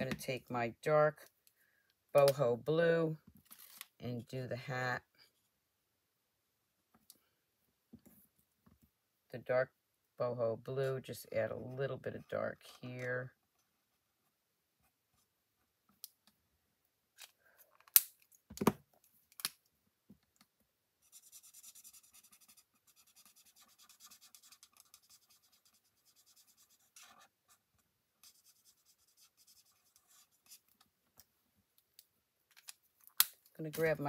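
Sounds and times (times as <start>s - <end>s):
marker scratching on cardstock: 21.0s - 27.3s, 28.2s - 30.6s.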